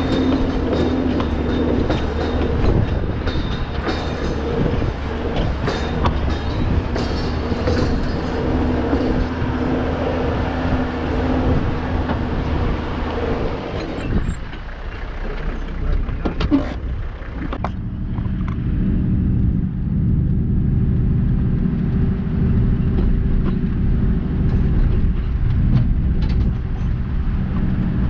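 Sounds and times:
machine clanking and rattling: 0.0s - 9.3s
diesel engine running: 0.0s - 28.0s.

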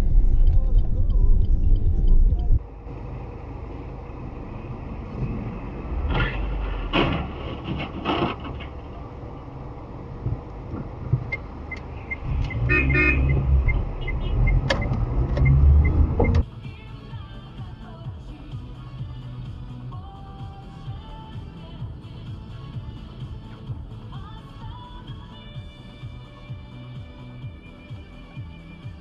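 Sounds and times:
engine and road rumble: 0.0s - 29.0s
car horn: 12.0s - 14.7s.

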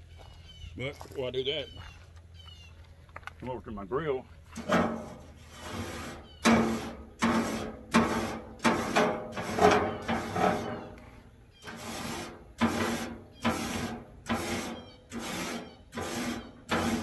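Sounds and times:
scraping metal grate: 4.6s - 17.0s.

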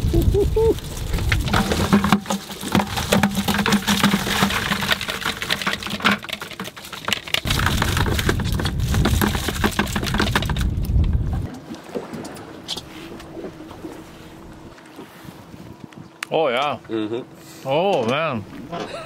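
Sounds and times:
prawns clicking and rattling: 0.8s - 11.6s
low rumble: 7.5s - 11.5s.

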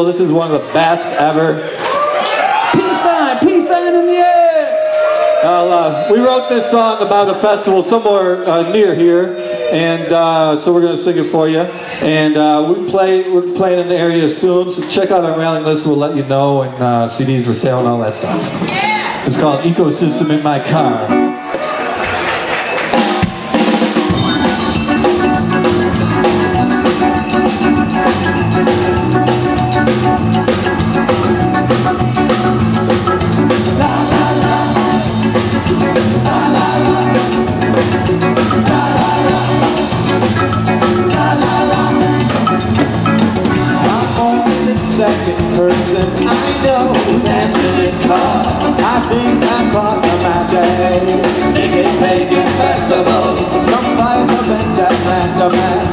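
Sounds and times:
live band playing: 17.4s - 55.9s
hand percussion: 20.4s - 55.9s
electric guitar: 20.9s - 55.9s
drum kit: 22.8s - 55.9s
electric bass: 23.0s - 55.9s.

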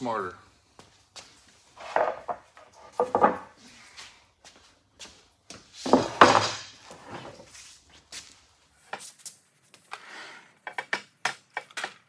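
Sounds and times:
wooden boards knocking together: 1.8s - 3.6s, 5.9s - 6.7s.

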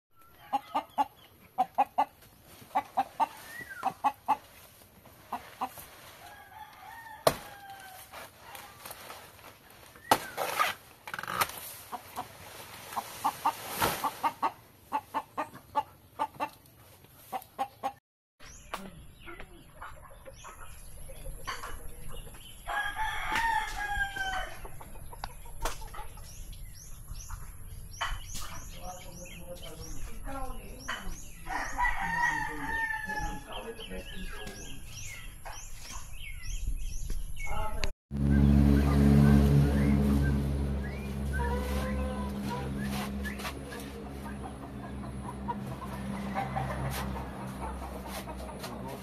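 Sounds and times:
chickens clucking: 0.2s - 6.2s, 11.8s - 18.0s, 18.7s - 22.7s, 24.2s - 31.7s, 40.0s - 49.0s
rooster crowing: 6.2s - 8.1s, 22.7s - 24.6s, 31.5s - 33.5s.

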